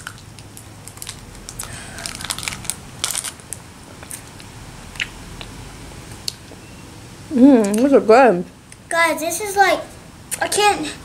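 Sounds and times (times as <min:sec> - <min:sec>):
plastic wrappers crinkling: 0:00.0 - 0:04.4.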